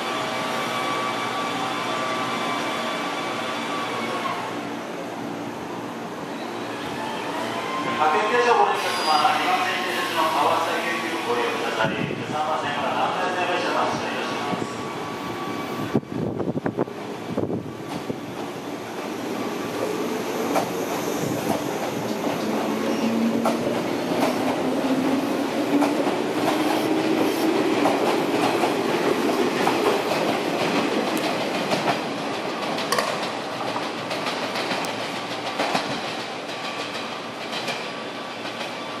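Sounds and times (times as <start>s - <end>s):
train wheels clacking over rail joints: 25.7s - 38.8s.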